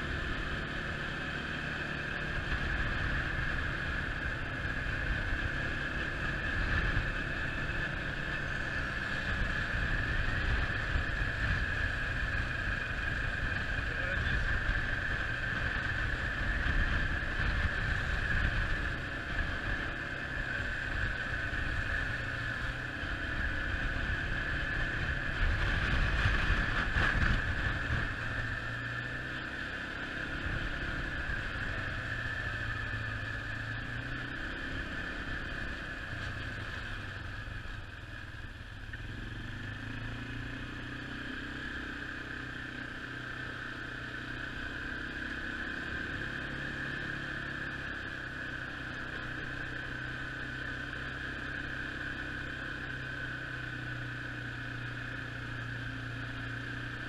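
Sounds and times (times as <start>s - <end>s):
wind rumbling on microphone: 20.7s - 29.1s.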